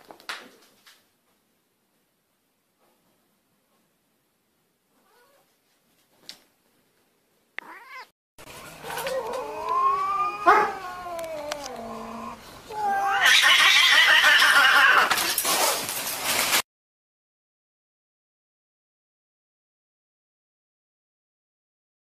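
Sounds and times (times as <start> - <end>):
cats caterwauling: 7.6 - 15.3.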